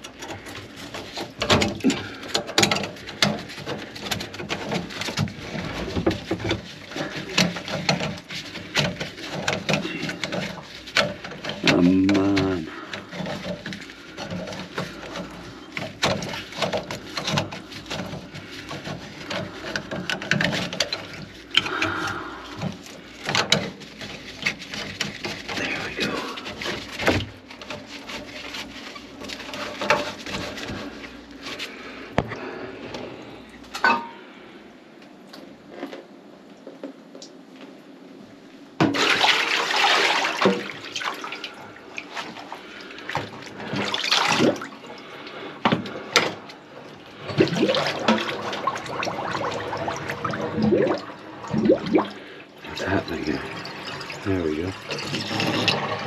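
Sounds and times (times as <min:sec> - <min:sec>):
knocks and clatters from plumbing: 0:00.0 - 0:34.2, 0:38.8 - 0:56.0
water gurgling in sink drain: 0:47.1 - 0:56.0.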